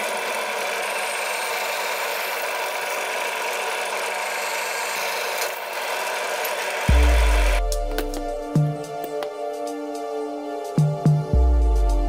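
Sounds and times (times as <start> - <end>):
drill press boring through steel: 0.0 - 7.6.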